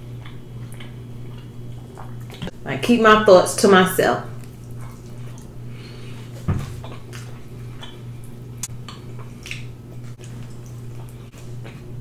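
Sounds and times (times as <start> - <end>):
person chewing: 0.0 - 2.5, 4.4 - 12.0
steady low hum: 0.0 - 12.0
lip smacks: 6.2 - 11.9.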